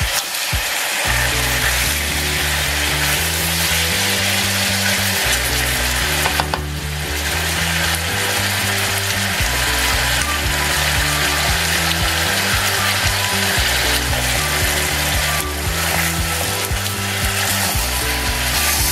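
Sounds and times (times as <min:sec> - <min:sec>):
chicken sizzling in hot oil: 0:00.0 - 0:18.9
background music with bass line: 0:01.0 - 0:18.9.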